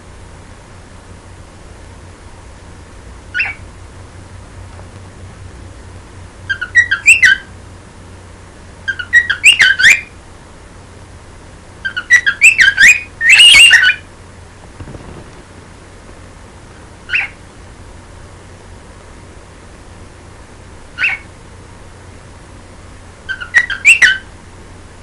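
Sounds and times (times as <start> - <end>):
cockatiel whistling: 3.3 - 3.6, 6.5 - 7.5, 8.9 - 10.2, 11.8 - 14.0, 17.1 - 17.4, 21.0 - 21.2, 23.3 - 24.3.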